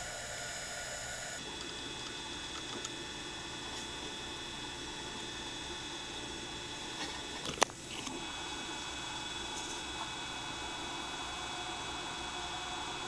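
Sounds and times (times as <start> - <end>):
idle machine hum: 0.0 - 6.9.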